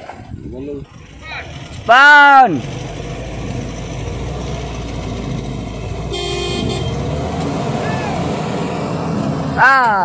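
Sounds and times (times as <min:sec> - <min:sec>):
vehicle engine rumbling: 0:00.0 - 0:10.0
car horn toot: 0:06.1 - 0:07.0.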